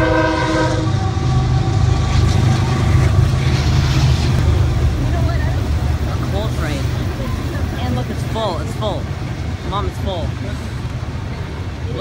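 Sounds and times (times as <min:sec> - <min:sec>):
train horn chord: 0:00.0 - 0:02.2
train passing with low rumble: 0:00.0 - 0:12.0.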